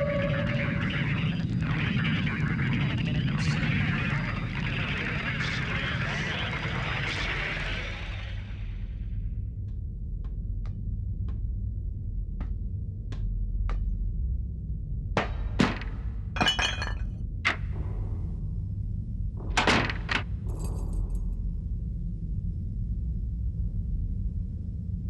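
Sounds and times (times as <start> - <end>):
steady low hum: 8.4 - 25.0.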